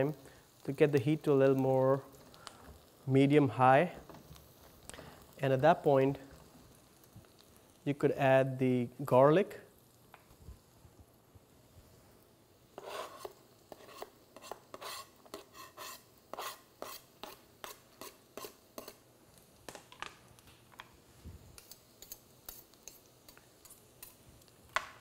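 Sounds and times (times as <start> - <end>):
knife scraping cutting board: 12.8 - 19.0.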